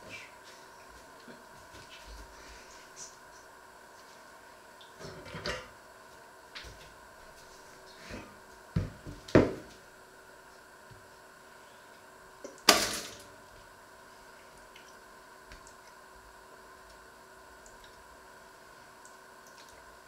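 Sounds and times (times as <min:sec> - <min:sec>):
kitchen items knocking on wood: 0:08.8 - 0:09.7.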